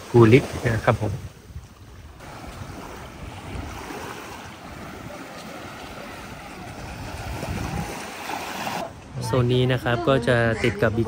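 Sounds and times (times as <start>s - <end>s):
sea wind rushing: 0.0s - 11.0s
small waves washing on beach: 0.0s - 11.0s
wind buffeting microphone: 0.5s - 11.0s.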